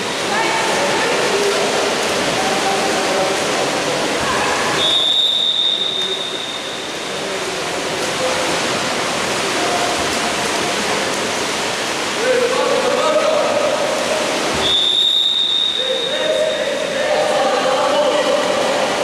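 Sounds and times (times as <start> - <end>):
splashing water: 0.0 - 19.0
referee whistle blast: 4.8 - 6.8, 14.6 - 16.4.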